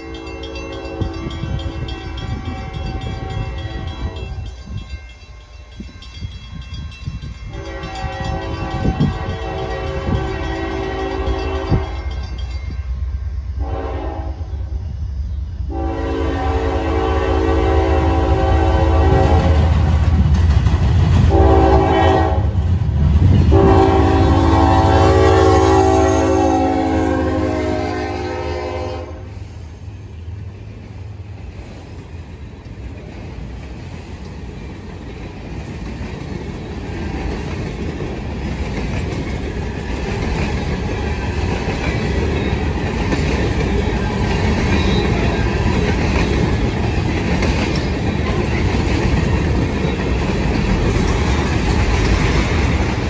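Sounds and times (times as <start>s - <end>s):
locomotive air horn blasts: 0.0s - 1.4s, 7.5s - 12.0s, 13.6s - 14.5s, 15.7s - 19.7s, 21.3s - 22.6s, 23.5s - 29.6s
train rumble: 0.0s - 53.0s.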